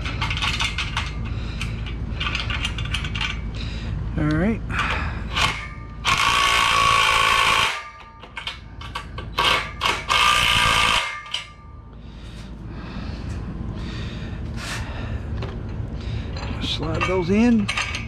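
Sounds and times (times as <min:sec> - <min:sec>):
impact driver whine and rattle: 0:00.0 - 0:03.6, 0:04.7 - 0:12.0.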